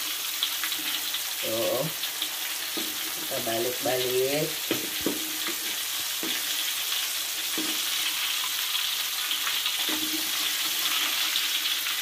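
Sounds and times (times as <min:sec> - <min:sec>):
fish sizzling in hot oil: 0:00.0 - 0:12.0
spatula scraping pan: 0:04.6 - 0:08.4, 0:09.4 - 0:11.5.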